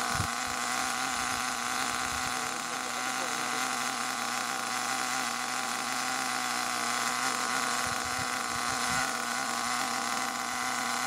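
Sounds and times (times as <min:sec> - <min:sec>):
nitro engine idling: 0:00.0 - 0:11.0.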